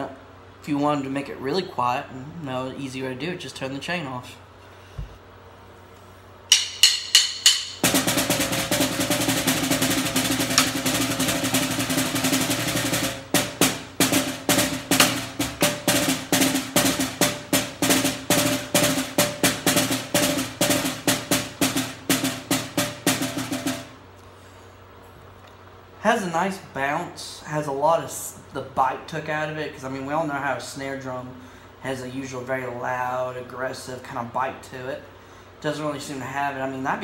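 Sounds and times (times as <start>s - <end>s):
muffled snare drum strokes and roll: 6.5s - 24.0s.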